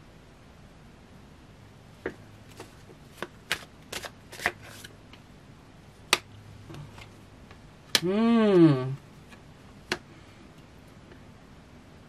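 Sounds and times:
cards shuffled and snapping: 0:02.5 - 0:05.0.

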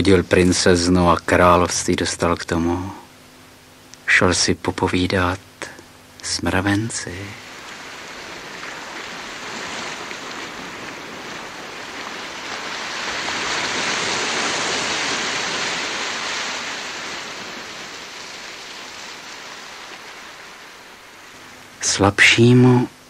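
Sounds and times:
wave washing in: 0:06.6 - 0:22.3.

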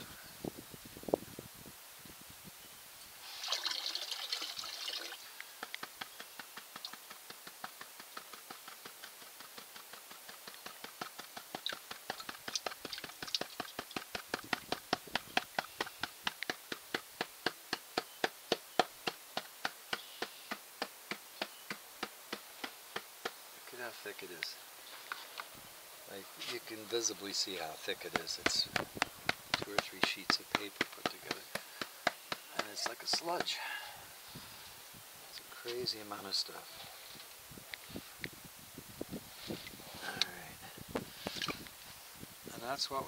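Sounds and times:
water splashing: 0:03.2 - 0:05.3.

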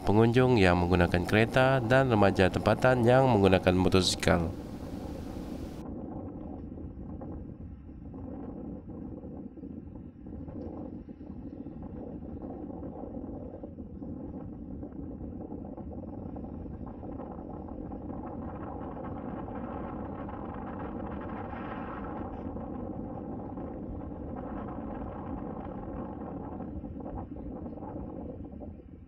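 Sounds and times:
road noise: 0:00.0 - 0:05.8
wind on microphone: 0:00.0 - 0:29.0.

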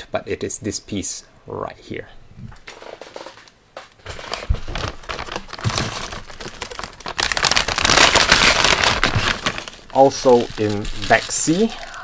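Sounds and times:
plastic bag crinkling: 0:02.6 - 0:12.0.

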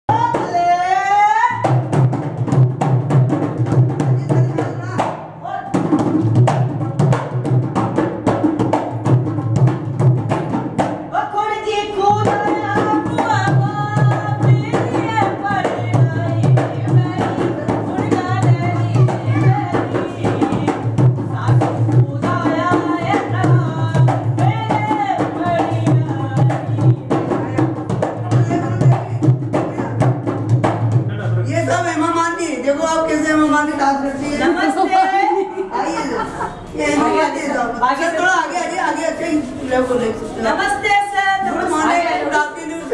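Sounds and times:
dholak drum rhythm: 0:00.1 - 0:33.3
person singing folk melody: 0:18.0 - 0:20.0.

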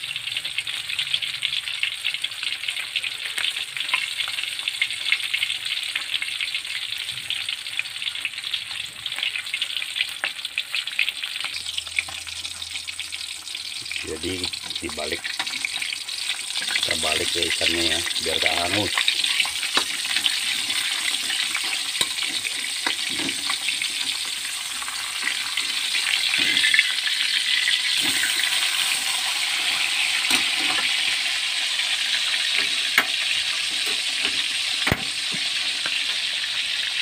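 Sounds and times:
fish sizzling in hot oil: 0:00.0 - 0:37.0
metal spatula scraping pan: 0:19.2 - 0:24.2, 0:26.1 - 0:27.0.

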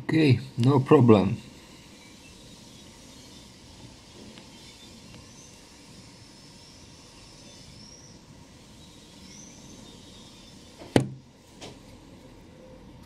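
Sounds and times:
faint outdoor background noise: 0:00.0 - 0:13.0.

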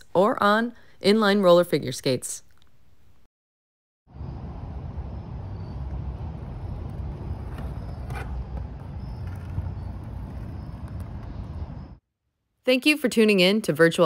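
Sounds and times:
skate wheels rolling on tiles: 0:05.8 - 0:12.0.

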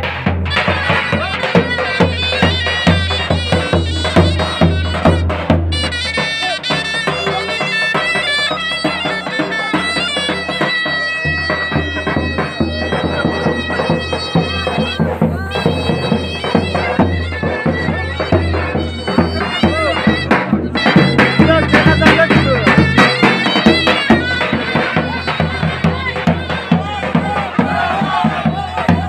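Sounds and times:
reed wind instrument melody: 0:00.0 - 0:29.0.

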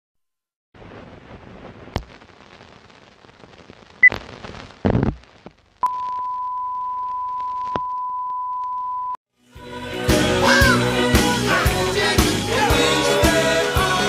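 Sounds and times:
tape hiss: 0:00.8 - 0:09.1.

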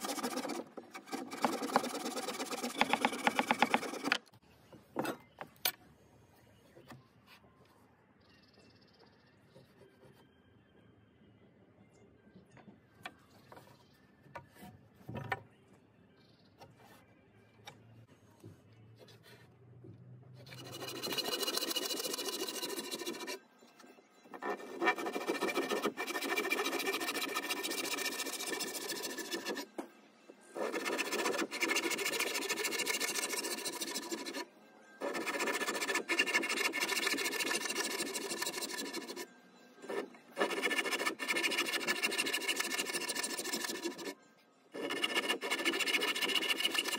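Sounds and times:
handsaw cutting wood: 0:00.0 - 0:04.2, 0:20.5 - 0:23.4, 0:24.4 - 0:29.7, 0:30.6 - 0:34.4, 0:35.0 - 0:39.2, 0:39.9 - 0:44.1, 0:44.8 - 0:46.9.

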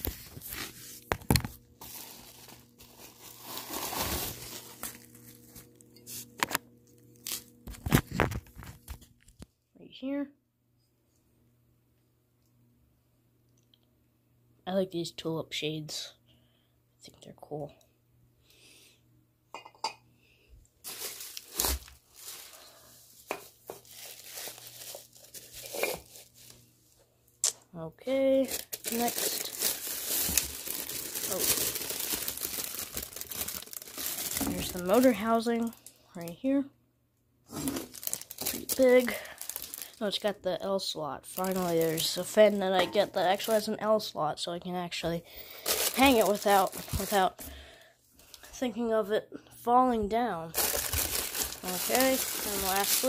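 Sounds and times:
packaging wrap crinkling and tearing: 0:00.0 - 0:06.6, 0:07.2 - 0:09.4, 0:20.8 - 0:26.6, 0:28.3 - 0:36.3, 0:37.5 - 0:40.3, 0:41.3 - 0:43.7, 0:45.5 - 0:47.4, 0:50.5 - 0:53.0
wrap rustling: 0:45.6 - 0:47.2, 0:50.6 - 0:53.0.

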